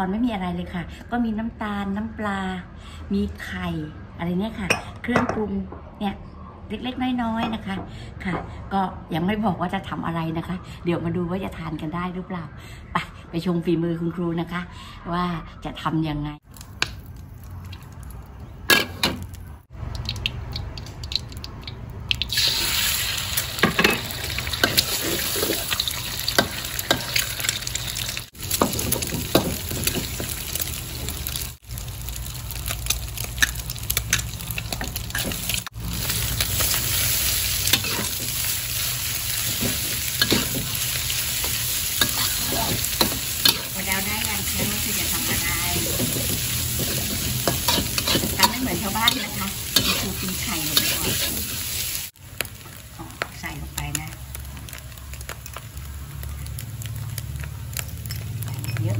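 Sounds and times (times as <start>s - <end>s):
hot oil sizzling in a wok: 19.8s - 58.9s
spatula scraping a pan: 44.5s - 51.7s.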